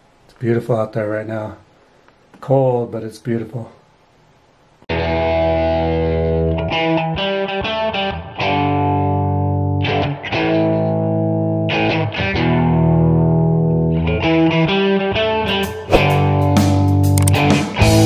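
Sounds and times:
distorted electric guitar chords: 4.9 - 15.1.

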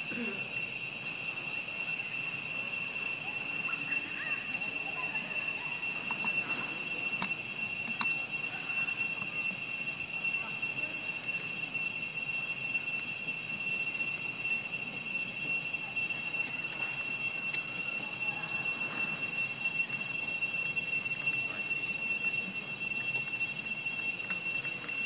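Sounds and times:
insects droning: 0.0 - 25.0.

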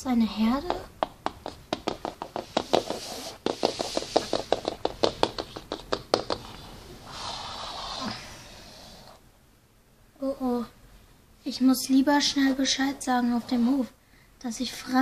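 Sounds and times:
plastic toy tapping on wood: 0.6 - 6.5.

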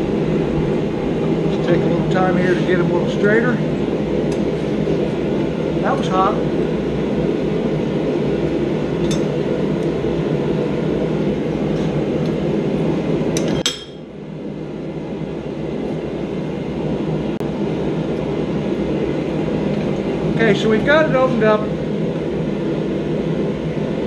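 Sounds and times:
steady rushing noise: 0.0 - 13.4, 18.7 - 24.0.

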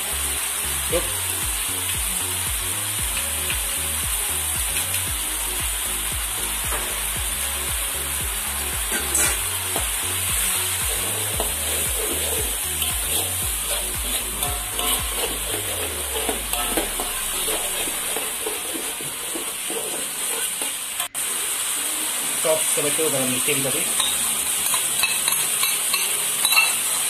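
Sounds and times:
sauce sizzling in a wok: 0.0 - 27.0
metal spatula scraping: 8.9 - 9.5, 10.9 - 21.2.

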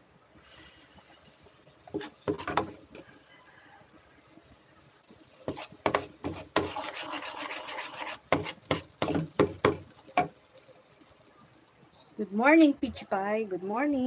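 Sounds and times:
scraping in pan: 0.4 - 3.8, 5.0 - 12.1.

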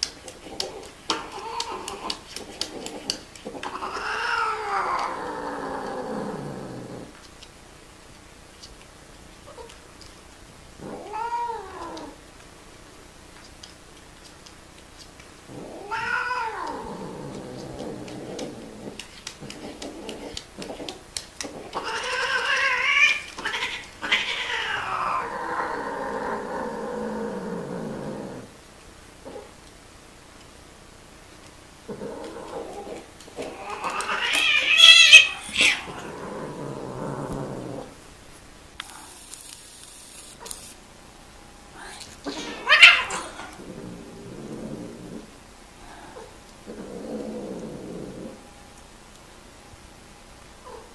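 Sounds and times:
cat growling: 0.2 - 7.2, 10.8 - 12.2, 15.4 - 28.6, 29.2 - 29.5, 31.8 - 38.0, 41.8 - 48.5
cat caterwauling: 0.6 - 7.1, 10.8 - 12.2, 15.5 - 28.4, 31.9 - 37.9, 42.3 - 45.2
cat yowling: 10.8 - 12.2, 15.6 - 18.5, 21.6 - 25.8, 33.5 - 36.0, 42.3 - 43.6.

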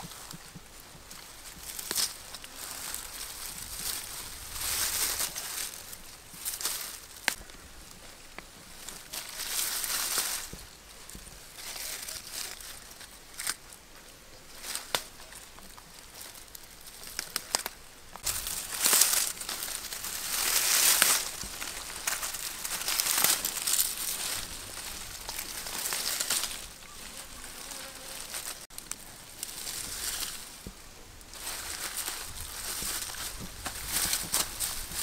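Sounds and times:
rustling through dry grass: 0.0 - 35.0
hands snapping leafy vines: 14.6 - 15.2, 17.0 - 26.6.

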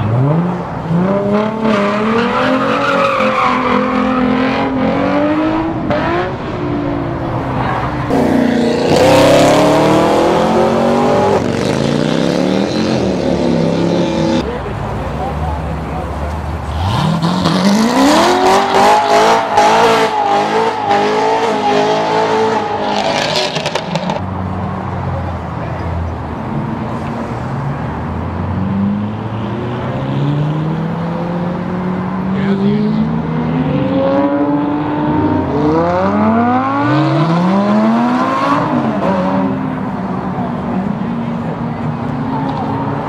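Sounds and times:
car accelerating hard: 0.0 - 14.4, 16.0 - 24.2, 28.5 - 41.9
car engine revving: 0.0 - 14.5, 16.0 - 24.3
crowd noise: 0.0 - 43.0.

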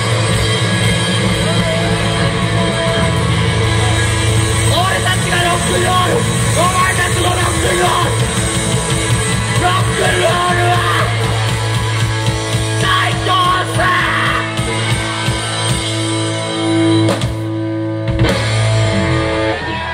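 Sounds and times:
drumming: 0.0 - 19.1
rock band playing loud: 0.0 - 19.9
person yelling into microphone: 9.6 - 11.2, 12.8 - 14.6.

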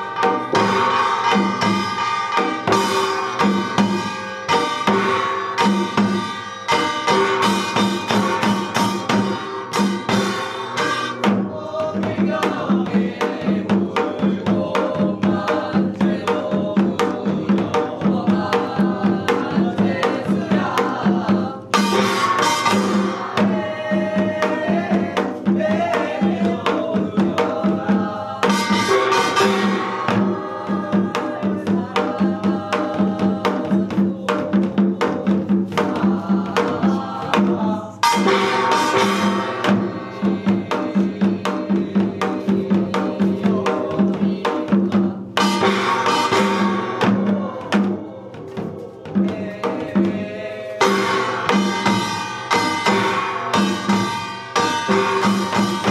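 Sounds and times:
person chanting: 0.0 - 1.9, 10.1 - 55.9
drums playing a fast beat: 0.0 - 55.9.

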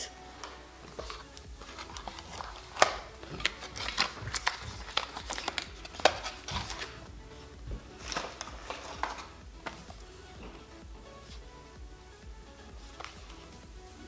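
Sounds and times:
cardboard and paper rustling: 0.4 - 11.5
card snapping: 0.9 - 7.0.

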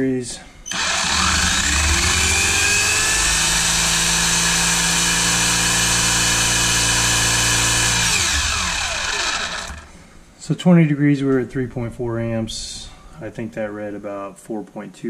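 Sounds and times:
electric motor whine: 0.7 - 10.0.

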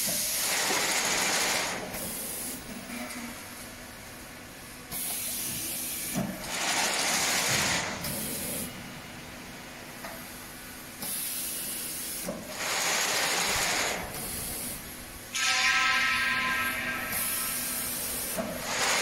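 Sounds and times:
machine running: 0.0 - 2.5, 6.4 - 8.8, 11.6 - 19.0.

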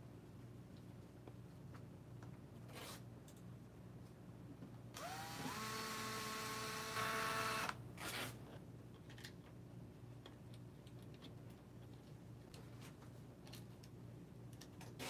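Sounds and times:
cordless drill motor whine: 5.0 - 7.8.

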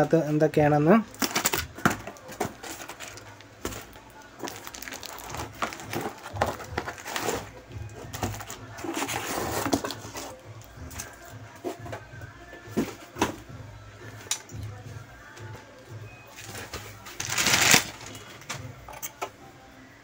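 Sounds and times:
cardboard and plastic wrap crinkling: 1.1 - 11.3, 16.4 - 18.3.

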